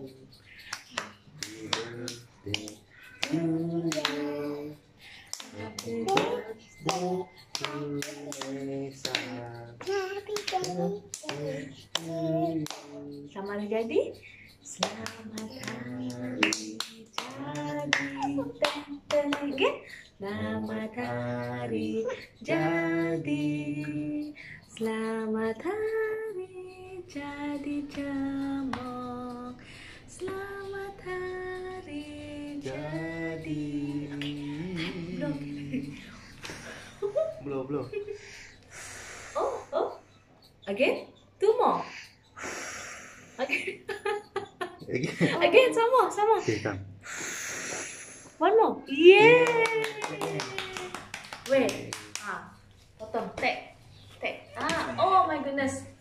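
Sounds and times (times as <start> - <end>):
family singing: 0.0 - 38.6, 48.9 - 56.0
hand claps: 0.6 - 4.4, 5.3 - 13.0, 14.8 - 19.7, 49.2 - 52.5.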